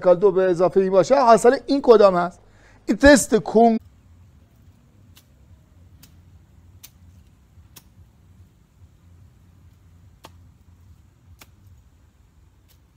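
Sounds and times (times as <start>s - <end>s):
faint low rumble: 3.8s - 12.9s.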